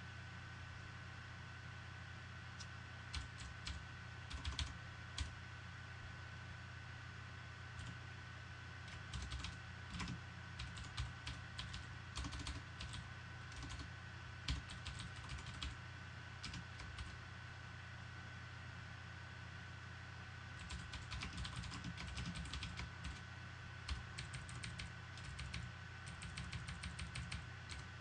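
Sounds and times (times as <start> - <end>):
faint steady hum: 0.0 - 28.0
computer keyboard typing: 3.1 - 5.3, 7.8 - 8.0, 8.9 - 13.9, 14.5 - 15.8, 16.4 - 17.2, 20.6 - 23.2, 23.9 - 27.9.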